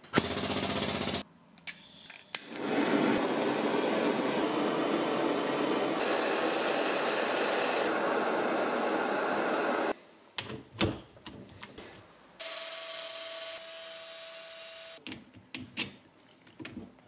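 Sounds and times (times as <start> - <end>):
gas torch hissing: 2.4 - 10.0.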